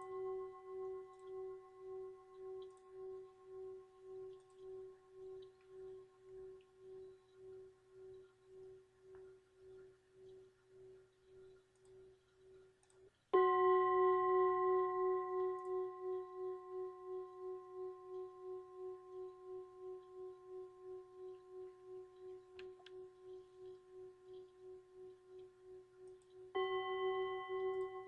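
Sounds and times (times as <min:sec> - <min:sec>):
singing bowl ringing: 0:00.0 - 0:09.9, 0:13.4 - 0:28.0
struck bowl ringing with overtones: 0:26.5 - 0:28.0.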